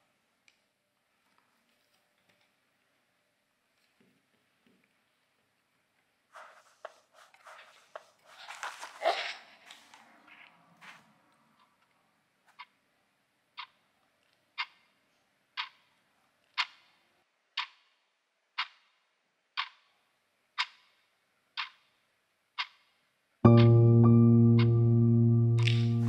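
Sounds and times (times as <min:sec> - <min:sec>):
clock ticking: 0:23.5 - 0:26.0.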